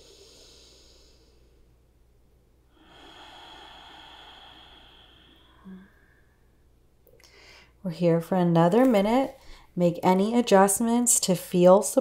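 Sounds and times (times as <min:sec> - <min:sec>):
woman breathing slowly: 0:00.0 - 0:01.8, 0:02.7 - 0:07.8, 0:09.4 - 0:09.8.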